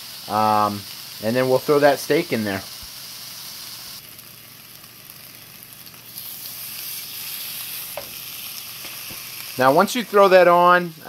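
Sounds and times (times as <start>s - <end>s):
food sizzling in a skillet: 0.0s - 11.0s.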